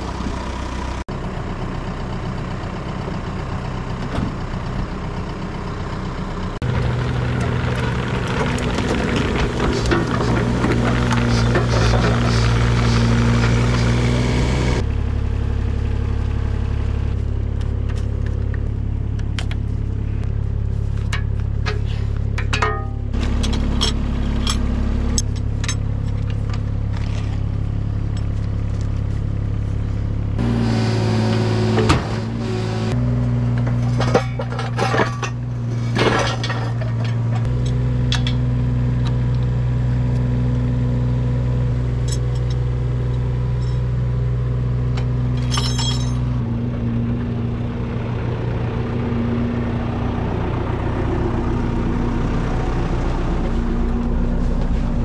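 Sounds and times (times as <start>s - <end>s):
machinery engine running: 0.0s - 55.0s
grinding scrape: 8.2s - 14.8s, 19.6s - 27.5s
rocks knocking and clinking: 45.0s - 46.3s.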